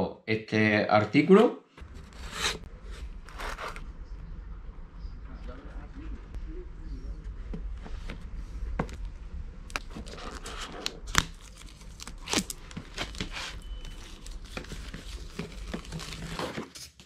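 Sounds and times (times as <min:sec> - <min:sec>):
plastic wrapping crinkling and tearing: 0:09.7 - 0:17.0.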